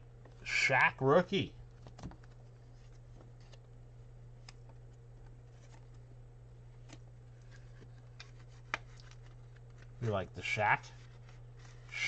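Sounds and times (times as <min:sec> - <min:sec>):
cards being flipped: 0:01.8 - 0:03.7, 0:04.4 - 0:06.0, 0:06.8 - 0:10.0.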